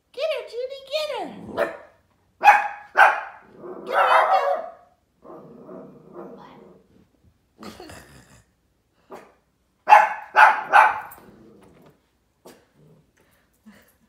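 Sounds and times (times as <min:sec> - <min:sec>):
dog barking: 0:01.5 - 0:05.0, 0:09.1 - 0:11.2.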